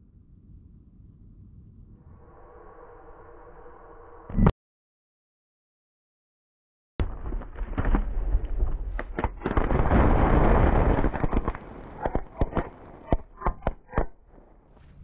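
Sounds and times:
firework sharp pops: 7.0s - 14.9s
firework crackling: 7.1s - 14.8s.

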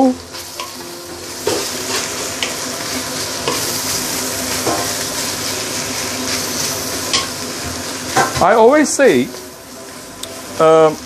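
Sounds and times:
rice sizzling in a wok: 0.0s - 11.0s
spatula scraping and knocking pan: 1.4s - 5.1s.

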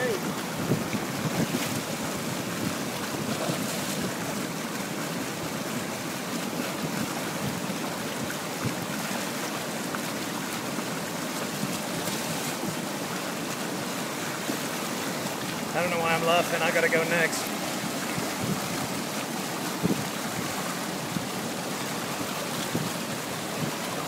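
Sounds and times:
whitewater rushing over rocks: 0.0s - 24.0s.

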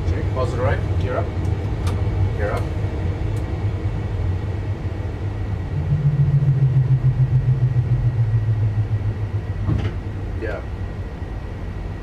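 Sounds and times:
low engine rumble: 0.0s - 12.0s
low hum sinking in pitch: 4.0s - 12.0s.

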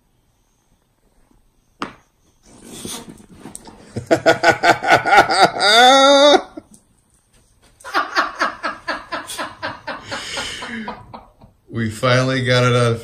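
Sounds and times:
person laughing: 3.9s - 6.8s, 7.8s - 11.5s.

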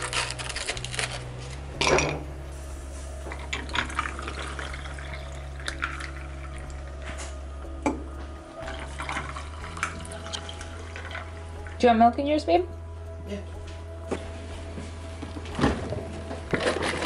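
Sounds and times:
steady low hum: 0.0s - 16.6s
ice and glass clinking: 1.8s - 2.2s, 3.3s - 6.2s
coffee pouring over ice: 3.3s - 7.0s, 8.6s - 11.8s.

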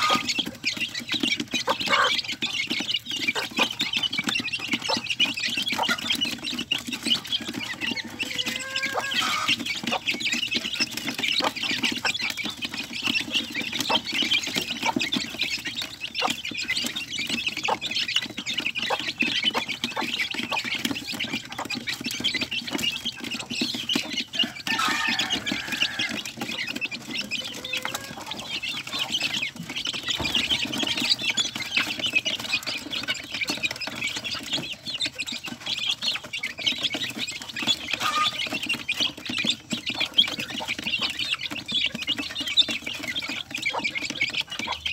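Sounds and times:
beaks pecking at feeder: 0.0s - 44.9s
chicks peeping: 0.0s - 44.9s
chicken call: 7.7s - 9.5s.

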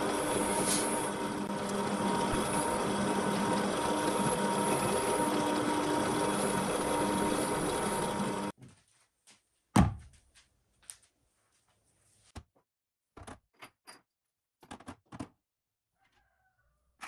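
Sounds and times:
drill press motor running: 0.0s - 8.6s.

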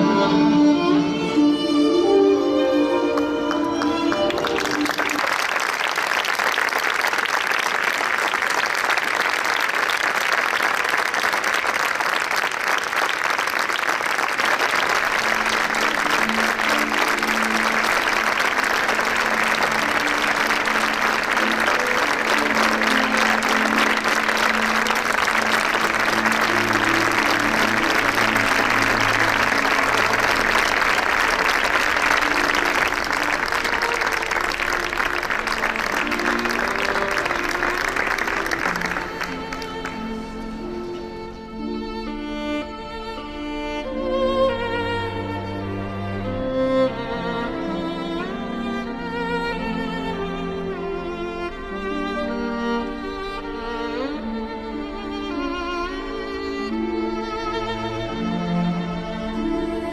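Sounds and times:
audience applauding: 2.9s - 40.9s
low held musical notes: 14.8s - 49.6s.

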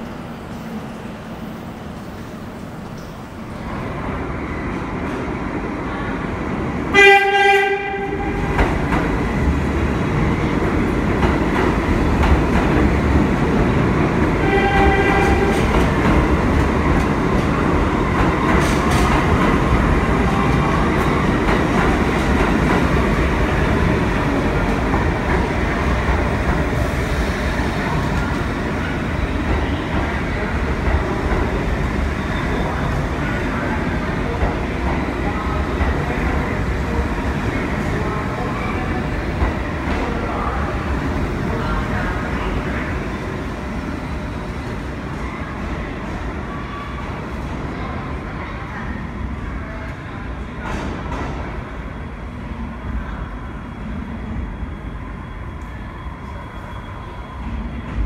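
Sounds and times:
train wheels on rails: 0.0s - 48.8s, 49.5s - 53.2s
subway train horn: 5.9s - 8.9s, 13.8s - 16.6s.

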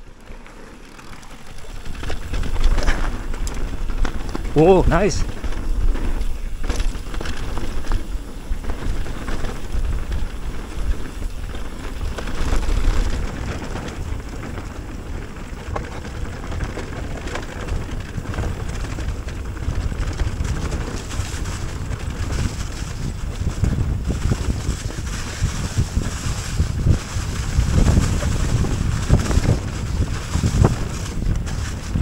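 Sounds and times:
bike tyres rumbling on dirt: 0.0s - 32.0s
wind buffeting microphone: 1.0s - 32.0s.

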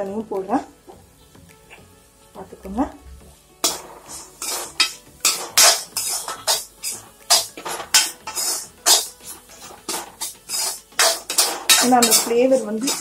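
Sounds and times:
metal spatula scraping pan: 3.6s - 13.0s.

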